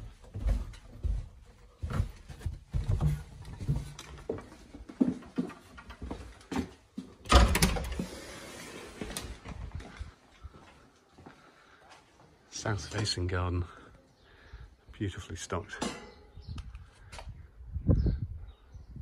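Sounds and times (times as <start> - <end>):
footsteps on wooden stairs: 0.0 - 8.1.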